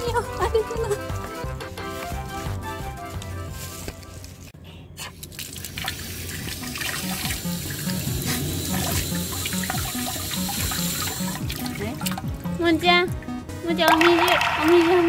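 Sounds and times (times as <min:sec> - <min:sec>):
background music: 0:00.0 - 0:04.5, 0:06.4 - 0:15.0
water running from tap: 0:05.2 - 0:12.6.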